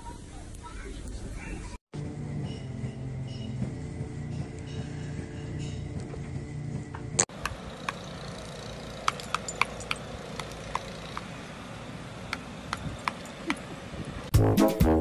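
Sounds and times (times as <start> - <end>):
brass music: 14.3 - 15.0.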